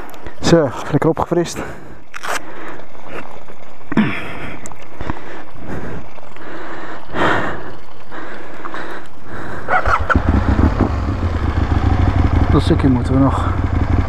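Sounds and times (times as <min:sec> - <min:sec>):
motorcycle engine starting and running: 0:09.7 - 0:14.0.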